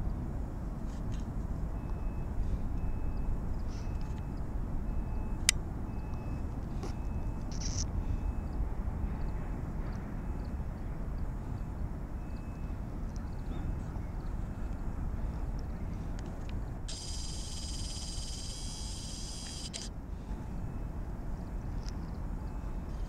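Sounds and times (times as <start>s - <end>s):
ferry engine rumble: 0.0s - 23.0s
faint short high beeps: 1.8s - 8.6s, 16.9s - 19.9s
sharp click: 16.9s - 19.9s.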